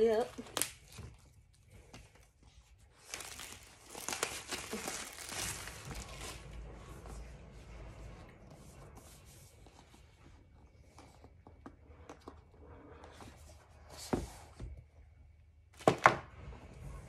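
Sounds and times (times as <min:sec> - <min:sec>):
plastic wrapping tearing and crinkling: 0:00.0 - 0:01.4, 0:02.2 - 0:06.7.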